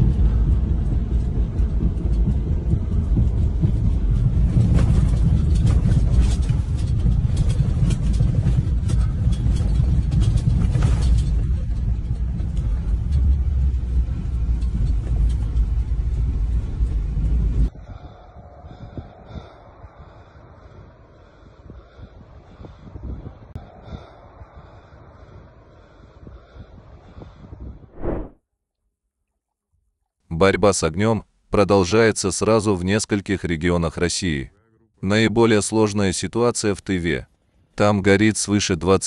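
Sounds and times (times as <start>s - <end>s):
road and engine rumble: 0.0s - 17.7s.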